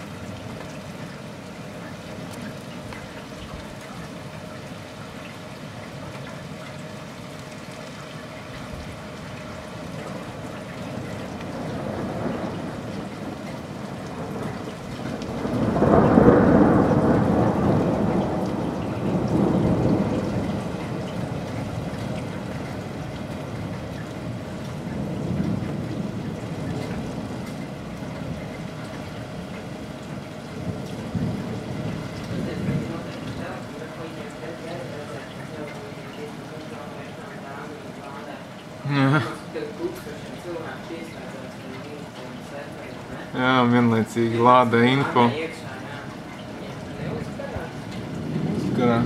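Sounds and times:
rain hissing: 0:00.0 - 0:49.0
distant thunder rolling: 0:08.6 - 0:37.3, 0:45.0 - 0:49.0.

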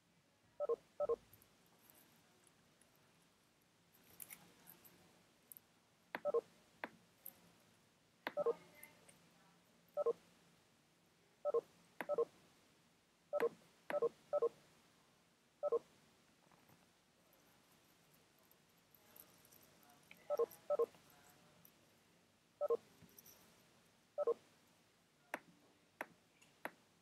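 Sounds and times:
electronic notification beeps: 0:06.2 - 0:06.4, 0:20.3 - 0:20.9, 0:24.2 - 0:24.4.

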